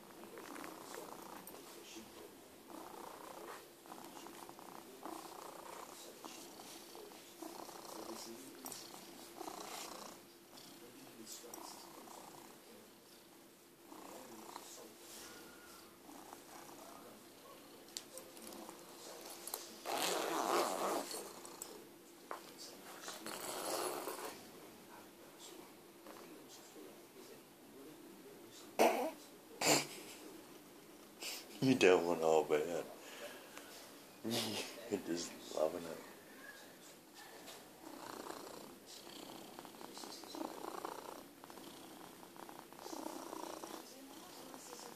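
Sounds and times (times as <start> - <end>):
cat purring: 0.0 - 21.9, 22.7 - 24.5, 37.2 - 44.9
scratchy backpack handling: 19.9 - 21.0.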